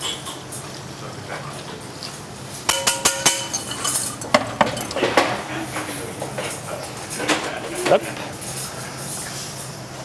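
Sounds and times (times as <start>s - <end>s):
metal kitchenware clinking: 2.6s - 8.8s.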